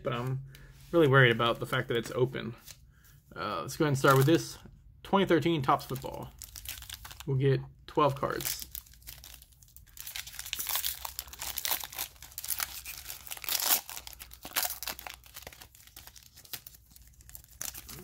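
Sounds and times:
foil wrapper crinkling and tearing: 5.9s - 7.3s, 8.3s - 18.0s.

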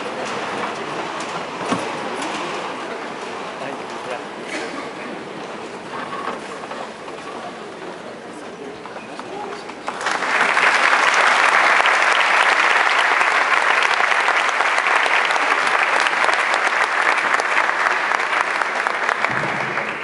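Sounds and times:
audience applauding: 9.7s - 20.0s.

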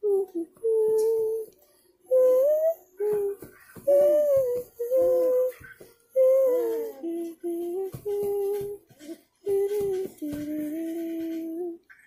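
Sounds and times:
woman humming slow tune: 0.0s - 11.9s.

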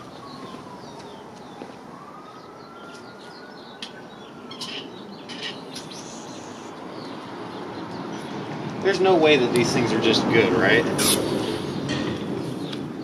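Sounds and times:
small birds chirping: 0.0s - 13.0s
steady outdoor hiss: 3.8s - 13.0s.

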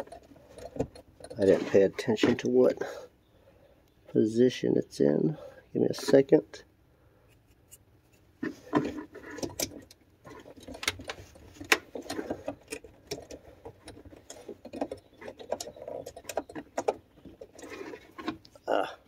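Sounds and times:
small plastic clicks and scrapes: 0.0s - 2.4s, 7.3s - 18.6s.

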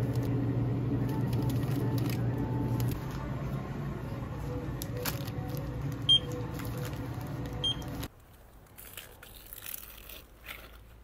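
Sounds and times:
low hum: 0.0s - 8.1s.

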